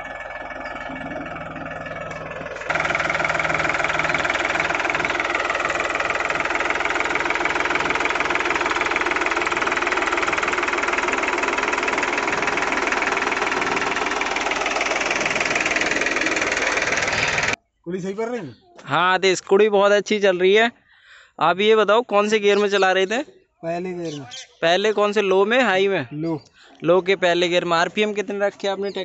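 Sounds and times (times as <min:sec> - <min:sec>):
tractor diesel engine clatter: 0:00.0 - 0:17.6.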